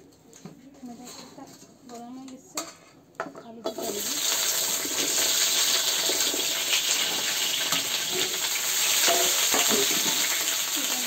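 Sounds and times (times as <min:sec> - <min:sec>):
potatoes sizzling in hot oil: 0:03.7 - 0:11.0.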